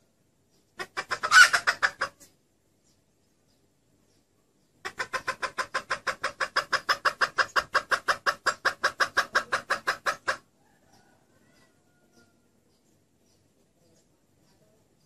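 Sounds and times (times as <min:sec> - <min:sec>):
hen clucking rapidly: 0:00.6 - 0:02.4, 0:04.7 - 0:12.3.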